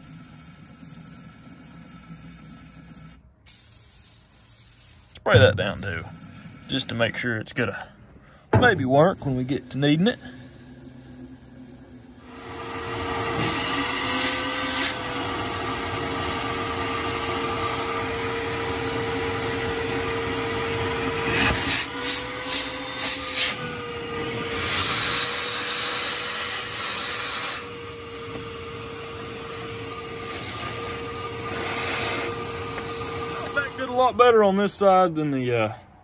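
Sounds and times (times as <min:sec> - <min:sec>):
shop vacuum running: 0:00.0 - 0:03.3, 0:05.4 - 0:07.3, 0:08.5 - 0:36.0
short hissing bursts: 0:00.0 - 0:07.2, 0:09.0 - 0:12.3, 0:24.6 - 0:27.7.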